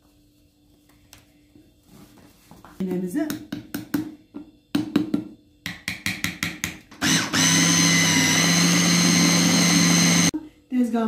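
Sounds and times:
food processor motor whining: 7.0s - 10.4s.

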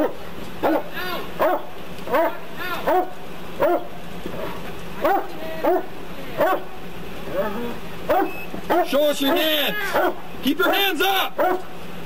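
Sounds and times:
dog barking: 0.0s - 6.7s, 8.1s - 10.8s, 11.4s - 11.7s.

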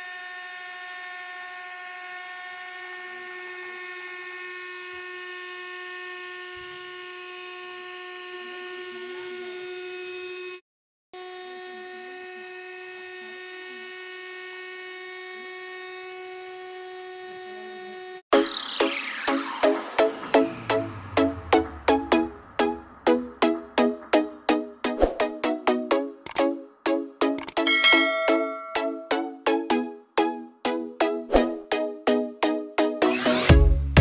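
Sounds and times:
model helicopter motors whining: 0.0s - 10.6s.

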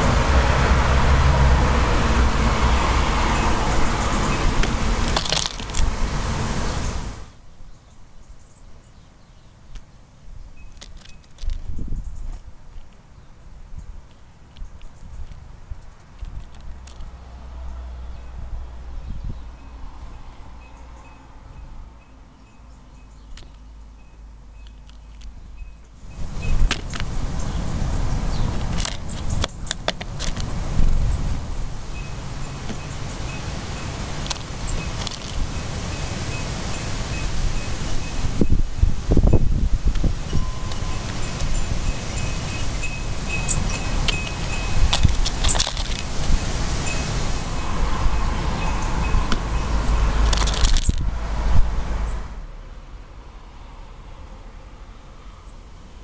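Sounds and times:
low rumbling noise: 0.0s - 7.4s
passing vehicle engine rumble: 0.0s - 7.4s, 15.4s - 56.0s
bird pecking at seeds: 33.9s - 35.6s, 42.6s - 46.4s.

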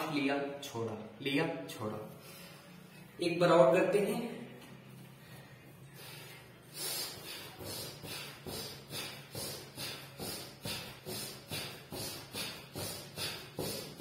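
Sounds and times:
barefoot jumping jacks on a mat: 7.5s - 14.0s.

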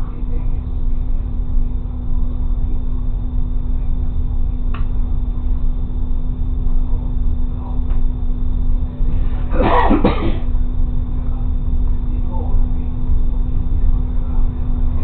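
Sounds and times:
constant hum: 0.0s - 15.0s
person coughing: 9.5s - 10.5s.

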